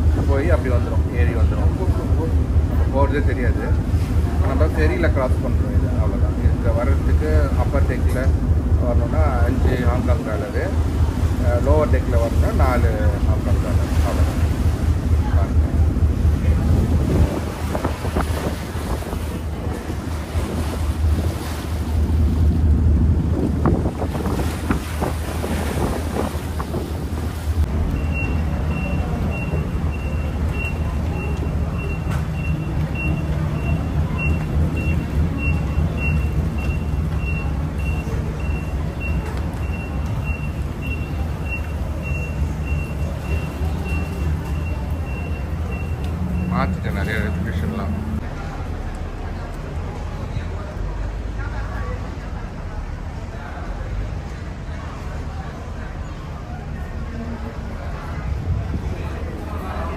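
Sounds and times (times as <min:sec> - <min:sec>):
low engine rumble: 0:00.0 - 0:59.9
wind buffeting microphone: 0:12.5 - 0:27.8, 0:58.1 - 0:59.7
short electronic beeps: 0:28.0 - 0:48.2.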